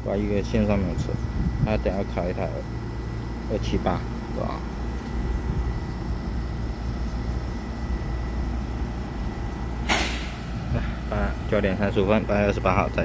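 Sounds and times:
electric train low rumble: 0.0 - 13.0
faint steady whine: 0.0 - 13.0
short burst of hiss: 9.8 - 10.5.

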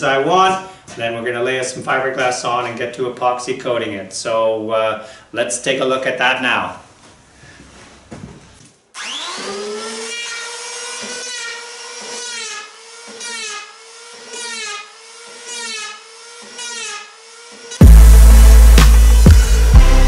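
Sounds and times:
electric power planer whining: 9.0 - 19.8
planer cutting wood: 9.0 - 20.0.

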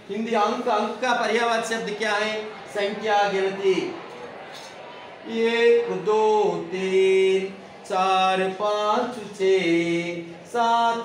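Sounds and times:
man chanting: 5.2 - 11.0.

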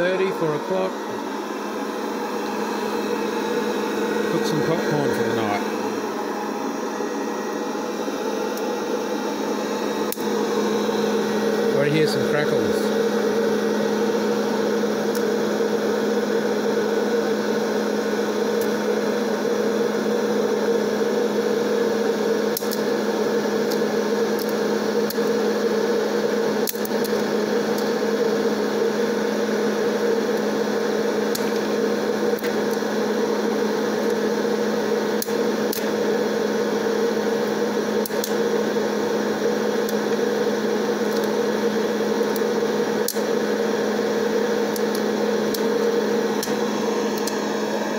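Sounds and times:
popcorn popper drone: 0.0 - 47.9
popcorn kernels popping: 38.0 - 38.4.

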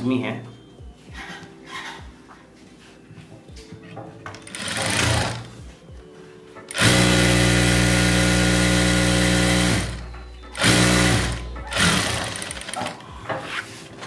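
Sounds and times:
sewing machine stitching: 4.3 - 5.5, 6.7 - 13.0.

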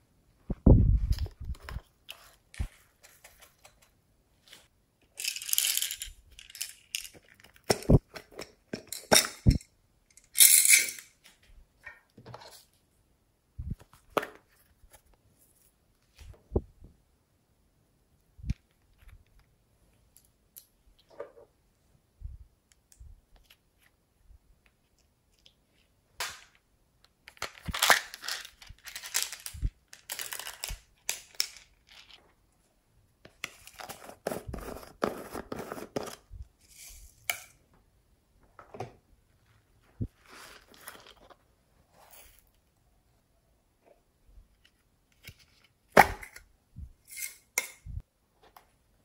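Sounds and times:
beads rattling into a tray: 5.2 - 7.3.

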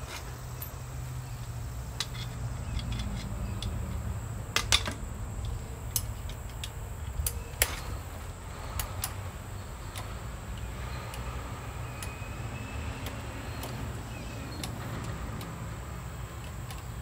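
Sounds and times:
hand tools clinking on metal: 0.0 - 12.3
steady low hum: 0.0 - 17.0.

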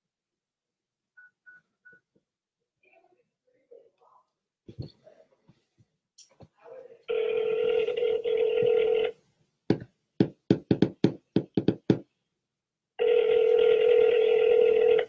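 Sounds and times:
telephone dial tone: 7.1 - 9.2, 13.0 - 15.0
telephone ringing tone: 7.1 - 9.2, 13.0 - 15.0.

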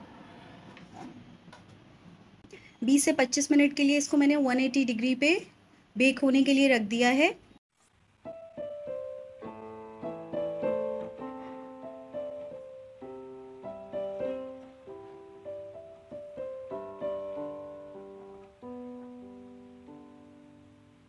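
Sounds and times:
gentle piano melody: 8.2 - 21.0.

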